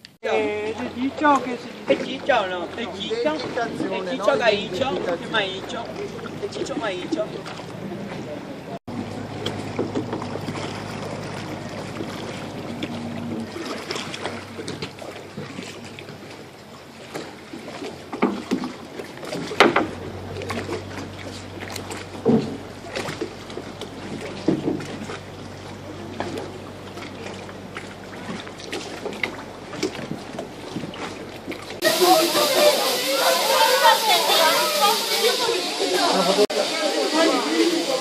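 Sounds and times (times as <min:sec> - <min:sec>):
low hum: 0:00.0 - 0:31.9
water against boat hull: 0:00.0 - 0:32.0
oar knocks: 0:18.1 - 0:20.0, 0:22.2 - 0:23.2, 0:24.1 - 0:25.2.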